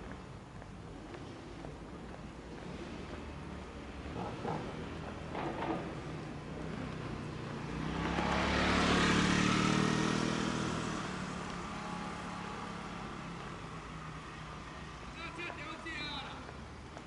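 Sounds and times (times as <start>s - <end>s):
vehicle passing by: 2.4s - 15.1s.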